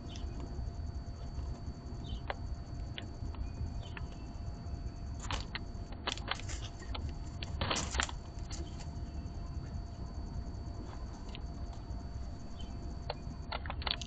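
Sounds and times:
birds scratching and rustling: 0:05.1 - 0:09.4
beaks clicking on seed tray: 0:13.0 - 0:14.0.

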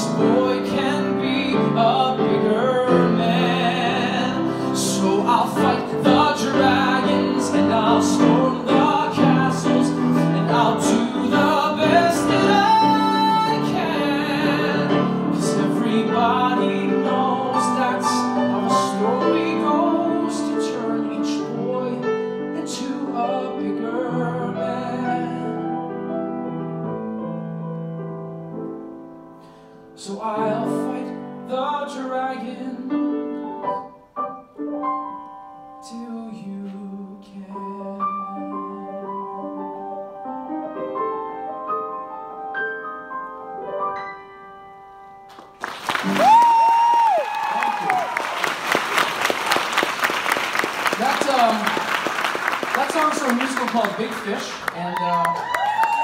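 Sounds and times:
man singing into a microphone: 0:00.0 - 0:25.9, 0:30.0 - 0:33.9, 0:35.8 - 0:39.5
piano accompaniment: 0:00.0 - 0:56.0.

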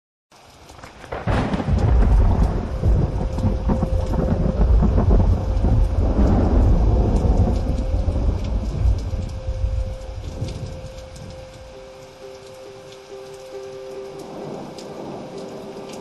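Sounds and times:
loud low rumbling: 0:01.3 - 0:11.6
faint steady hum: 0:01.8 - 0:16.0.

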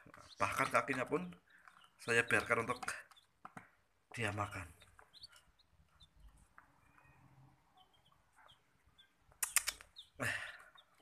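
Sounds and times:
chicks peeping: 0:00.0 - 0:11.0
sharp clicks: 0:09.3 - 0:10.0.

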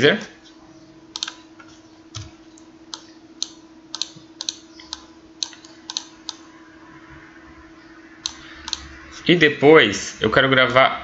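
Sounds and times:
faint hum: 0:00.0 - 0:11.0
keyboard and mouse clicks: 0:01.1 - 0:01.4, 0:02.1 - 0:06.4, 0:08.2 - 0:08.9.

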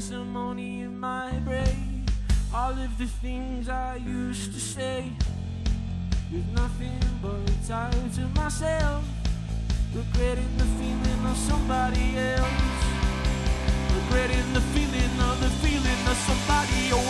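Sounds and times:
person singing: 0:00.0 - 0:05.3, 0:06.3 - 0:09.2, 0:09.9 - 0:17.0
bass guitar: 0:00.0 - 0:17.0
steady drum beat: 0:01.7 - 0:03.0, 0:05.2 - 0:17.0
electric guitar: 0:04.0 - 0:17.0.

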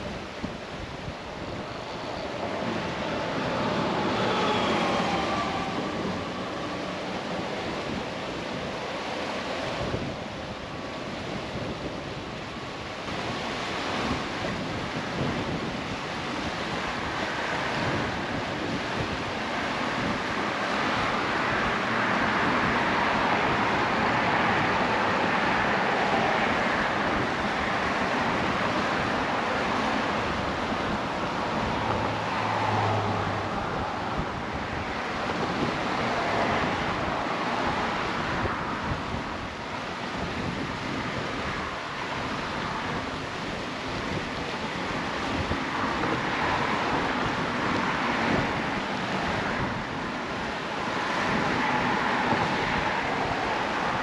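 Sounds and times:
wind rushing: 0:00.0 - 0:08.9, 0:20.0 - 0:39.6, 0:40.2 - 0:54.0
choppy sea water: 0:00.0 - 0:54.0
wind buffeting microphone: 0:00.0 - 0:54.0.

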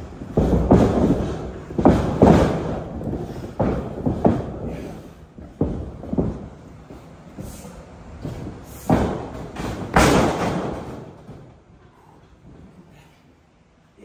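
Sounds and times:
bodies thudding on a mat: 0:00.0 - 0:07.0, 0:08.2 - 0:11.5.

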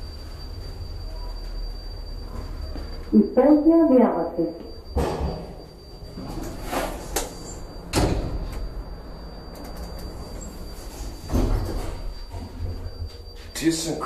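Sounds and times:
steady low hum: 0:00.0 - 0:14.0
elevator doors sliding: 0:04.8 - 0:14.0
elevator door thump: 0:04.9 - 0:05.6, 0:07.2 - 0:08.8.

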